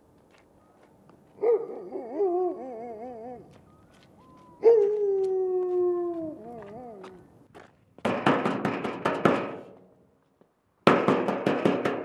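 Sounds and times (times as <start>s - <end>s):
animal howling: 1.4s - 7.3s.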